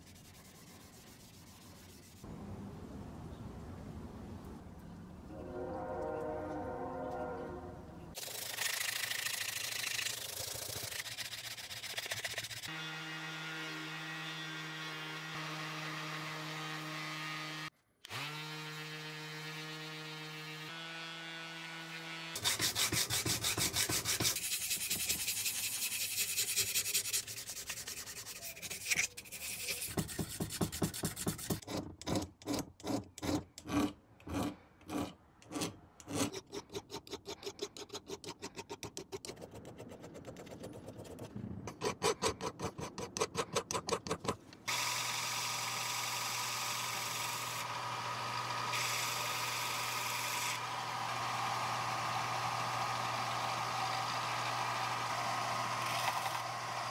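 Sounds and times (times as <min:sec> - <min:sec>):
file rubbing on steel: 0:22.4 - 0:44.4
belt sander running: 0:44.7 - 0:56.9.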